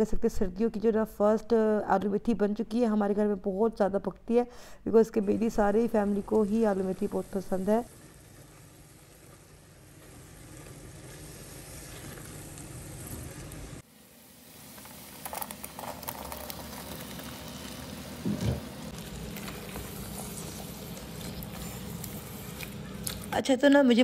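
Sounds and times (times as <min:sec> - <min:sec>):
food sizzling and bubbling in a pan: 0:05.9 - 0:23.4.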